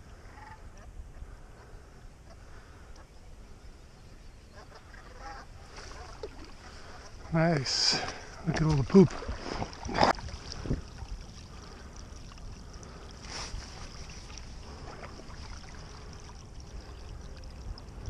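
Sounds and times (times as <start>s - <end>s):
low wind rumble: 0.0s - 18.0s
paddle swishing through water: 4.5s - 18.0s.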